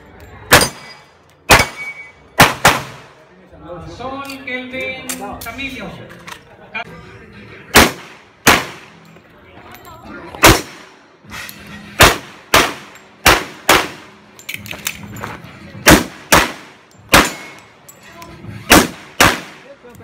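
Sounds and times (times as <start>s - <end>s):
pistol shots: 0.5s - 3.1s, 7.7s - 9.0s, 10.4s - 11.0s, 12.0s - 14.2s, 15.8s - 17.6s, 18.7s - 19.7s.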